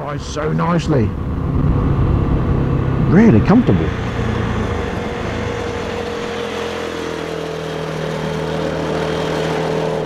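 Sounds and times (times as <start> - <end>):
wind rushing over microphone: 0.0 - 8.0
motorcycle engine running: 1.2 - 10.0.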